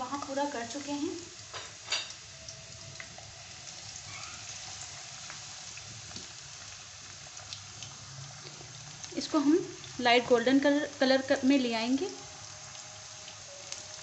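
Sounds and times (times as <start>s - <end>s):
onions sizzling in hot oil: 0.0s - 14.0s
small pops of frying oil: 5.2s - 10.5s.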